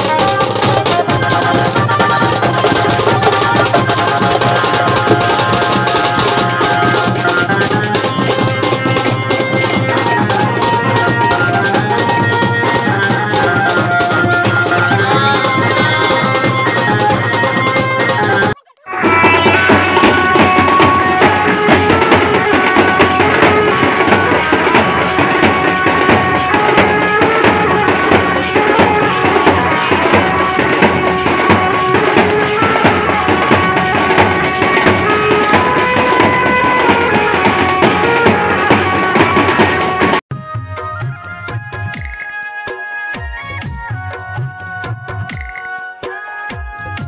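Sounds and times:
loud dance music: 0:14.6 - 0:16.7, 0:18.8 - 0:21.4.

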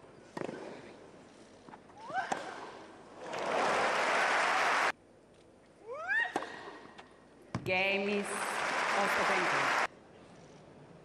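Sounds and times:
crowd applauding: 0:03.4 - 0:04.9, 0:08.2 - 0:09.9.

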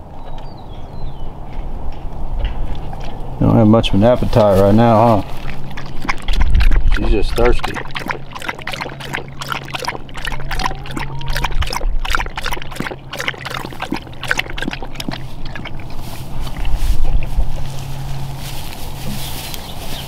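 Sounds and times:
dog lapping water: 0:04.2 - 0:18.3.

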